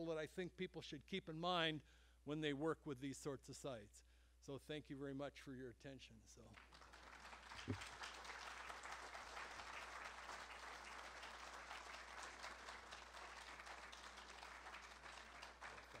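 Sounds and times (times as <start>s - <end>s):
faint audience applause: 6.5s - 16.0s.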